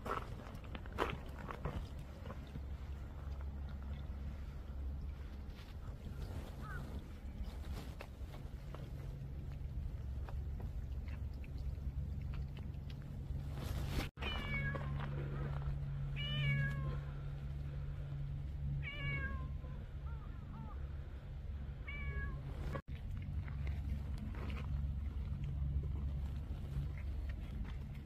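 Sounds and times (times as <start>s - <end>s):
low hum: 0.0s - 28.0s
cat meowing: 14.2s - 15.0s, 16.2s - 17.0s, 18.8s - 19.7s, 21.8s - 22.8s.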